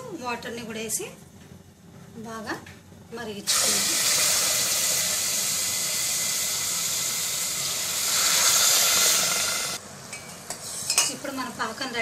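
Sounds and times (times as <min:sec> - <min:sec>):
water pouring into metal pot: 0:03.5 - 0:09.8.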